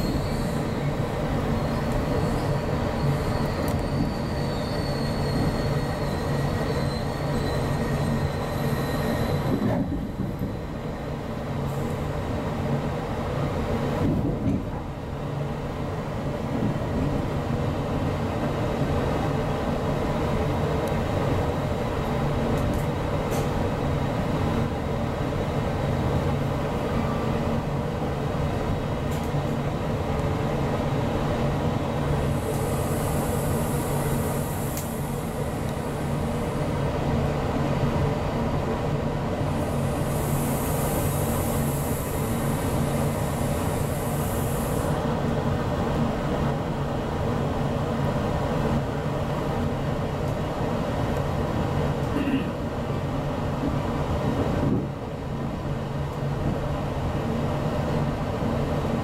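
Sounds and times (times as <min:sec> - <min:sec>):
high wheel squeal: 0:00.0 - 0:09.7
train wheels rumbling: 0:00.0 - 0:59.0.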